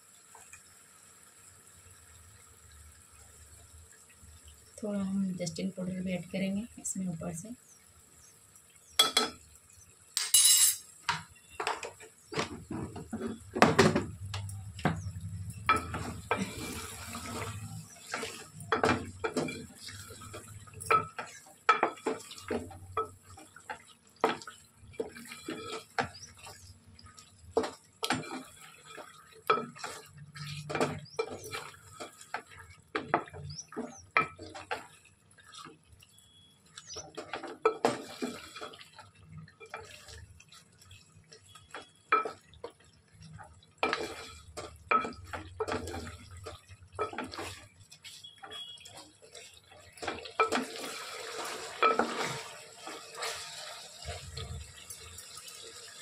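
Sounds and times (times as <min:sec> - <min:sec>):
metal dishes clinking: 0:10.2 - 0:11.2
water splashing and running: 0:10.9 - 0:56.0.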